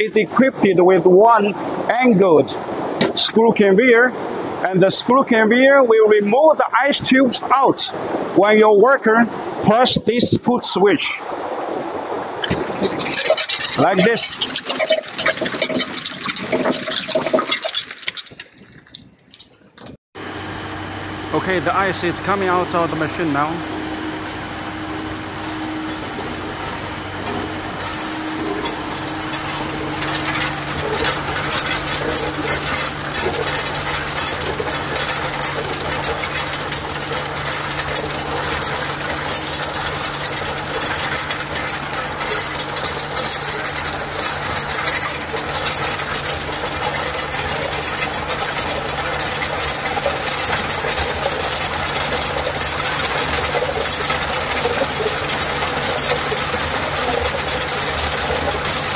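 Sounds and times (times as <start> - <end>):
steady machine hum: 0.0 - 17.9, 20.2 - 58.9
ice tubes clattering into hopper: 12.4 - 19.0, 27.2 - 58.9
low hum: 19.4 - 58.9.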